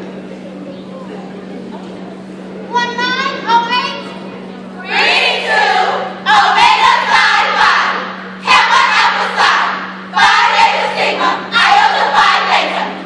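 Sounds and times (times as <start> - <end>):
women shouting a chant: 4.8 - 13.0.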